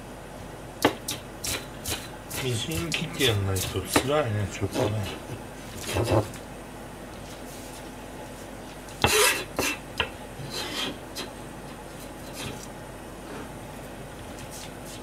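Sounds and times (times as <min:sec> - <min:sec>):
knife scraping cutting board: 0:01.4 - 0:06.4, 0:09.0 - 0:09.8, 0:10.4 - 0:11.3, 0:12.0 - 0:13.6, 0:14.3 - 0:15.0.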